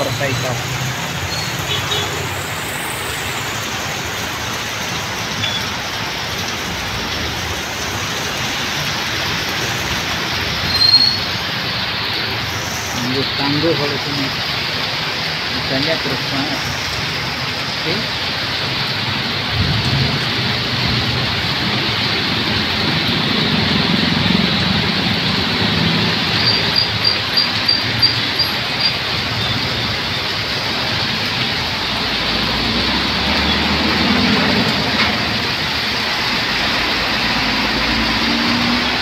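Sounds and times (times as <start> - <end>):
heavy rain pouring: 0.0 - 39.0
vehicles passing on wet road: 0.0 - 39.0.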